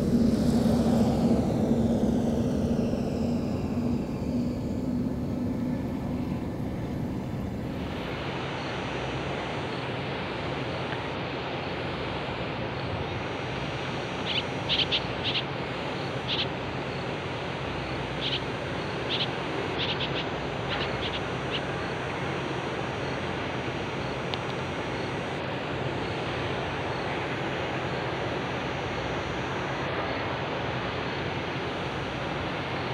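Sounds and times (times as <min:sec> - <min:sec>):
steady rushing noise: 0:00.0 - 0:19.7
low machine hum: 0:00.0 - 0:32.9.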